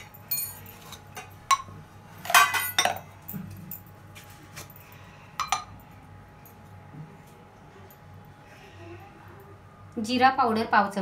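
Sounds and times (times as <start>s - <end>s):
metal spoon clinking on steel bowls: 0.0s - 3.9s, 5.4s - 5.8s.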